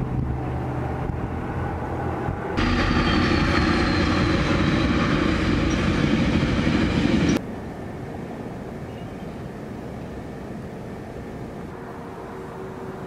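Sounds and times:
train passing rumble: 0.0s - 13.0s
steady background hiss: 7.4s - 13.0s.

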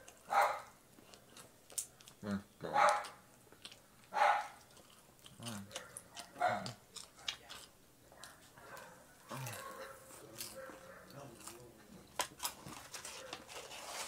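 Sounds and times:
dog barking: 0.3s - 0.8s, 2.7s - 3.2s, 4.1s - 4.6s, 5.6s - 7.4s, 8.1s - 11.2s
person chewing and lip-smacking: 1.0s - 8.4s.

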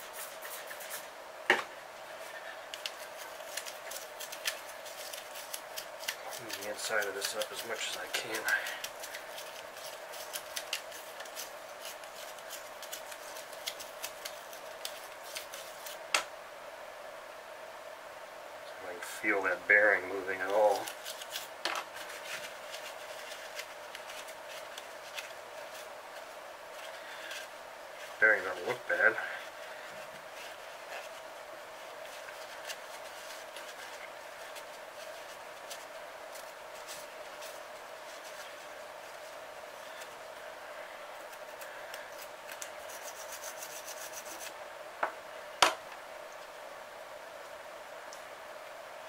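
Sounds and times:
faint steady hum: 0.0s - 49.0s
scratchy scrubbing rustles: 42.5s - 44.5s.

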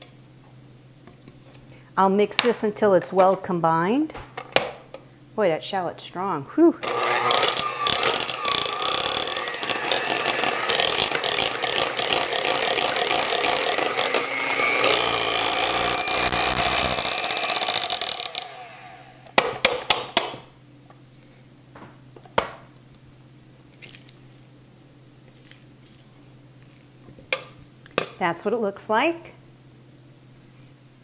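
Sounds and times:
electric hand mixer whirring: 6.8s - 19.4s.

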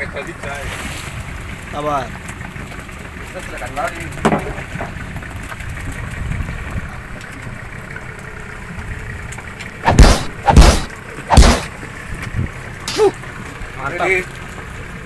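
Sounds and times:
heavy thumps against boat hull: 9.9s - 11.7s
steady low rumble: 9.9s - 11.7s.

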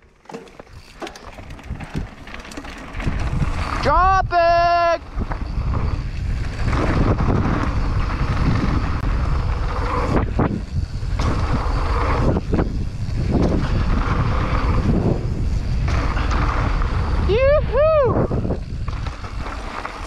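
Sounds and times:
bike knocking over bumps: 0.0s - 3.8s
tyres rumbling on dirt trail: 0.0s - 20.0s
wind buffeting microphone: 0.7s - 20.0s.

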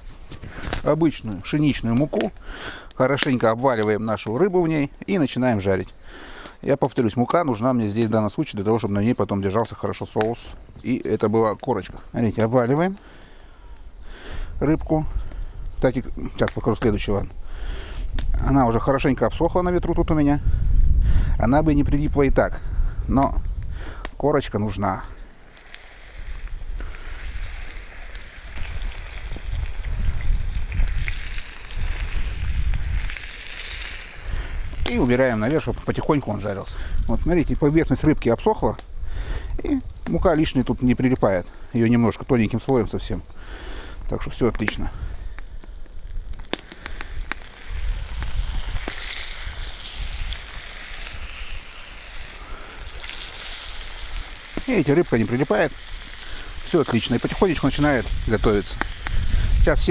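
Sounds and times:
fish sizzling in hot oil: 25.2s - 37.1s, 45.9s - 59.9s.

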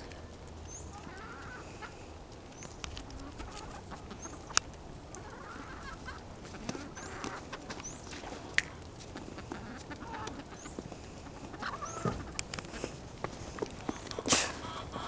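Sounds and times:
hens clucking: 0.8s - 2.2s, 3.0s - 15.0s.

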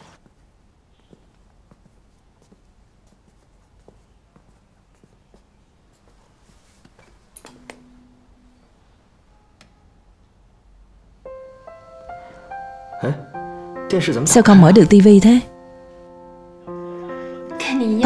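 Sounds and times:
faint footsteps: 0.0s - 8.0s
background music: 11.1s - 18.0s.

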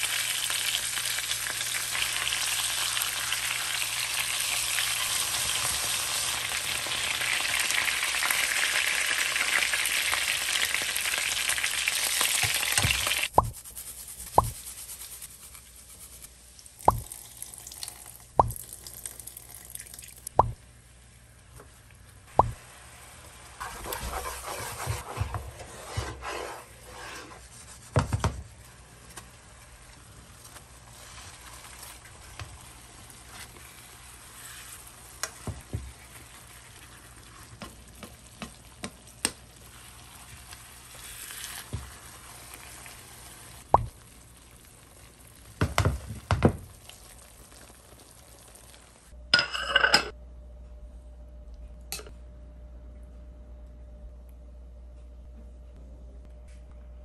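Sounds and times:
oil sizzling in a pan: 0.0s - 13.6s, 29.2s - 49.2s
spatula scraping a pan: 23.6s - 27.9s, 33.1s - 37.7s, 39.7s - 43.6s
spoon clinking: 49.4s - 50.1s.

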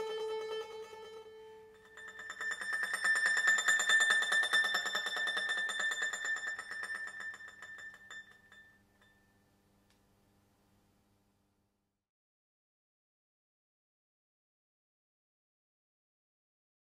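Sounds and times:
mandolin tremolo: 0.0s - 8.8s.

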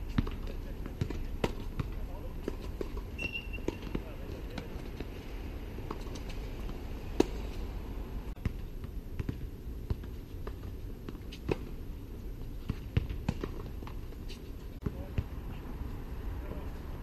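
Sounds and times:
tennis ball bouncing on hard court: 0.1s - 5.1s, 5.8s - 7.6s, 12.6s - 15.2s
tennis ball struck by racquets: 0.2s - 4.9s, 5.8s - 7.7s.

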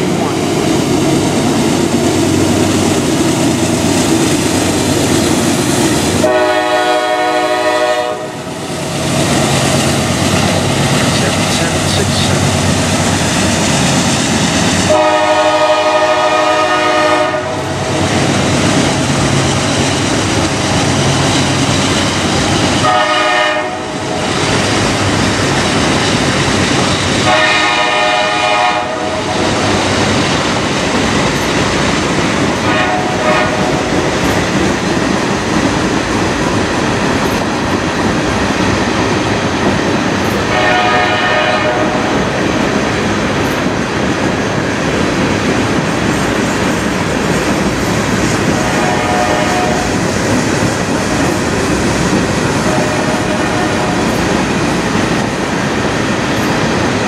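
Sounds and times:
freight train rumbling and clacking: 0.0s - 57.0s
locomotive air horn blasts: 6.2s - 8.4s, 14.9s - 17.6s, 22.8s - 23.9s, 27.3s - 29.2s, 32.7s - 33.6s, 40.5s - 42.0s, 48.5s - 49.9s, 52.6s - 54.1s.

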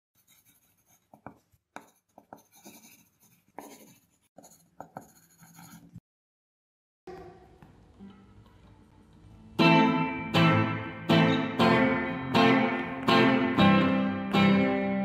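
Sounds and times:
pen scratching on paper: 0.2s - 6.0s
pen tapping: 1.1s - 2.9s.

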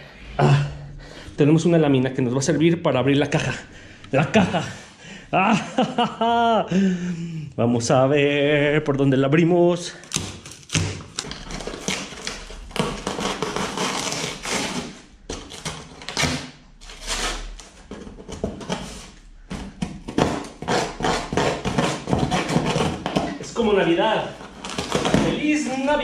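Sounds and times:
cardboard box being cut and torn: 10.1s - 17.6s, 20.0s - 23.4s
scraping and ripping cardboard: 10.1s - 26.0s.

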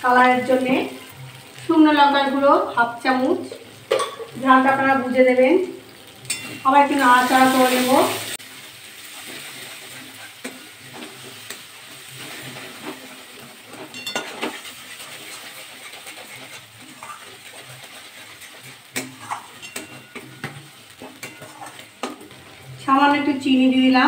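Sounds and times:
paste sizzling in hot oil: 0.0s - 23.0s
metal spatula scraping a pan: 6.1s - 22.8s.

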